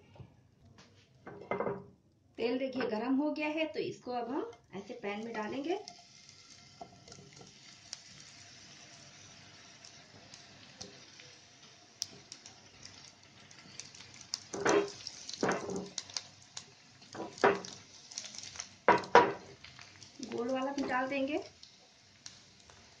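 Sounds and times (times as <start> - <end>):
oil sizzling in a frying pan: 2.8 - 23.0
small crackles: 4.8 - 23.0.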